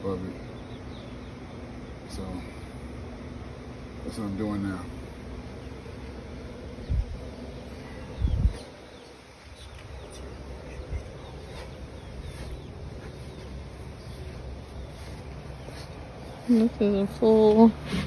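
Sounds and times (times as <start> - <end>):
faint bird chirps: 5.6 - 17.4.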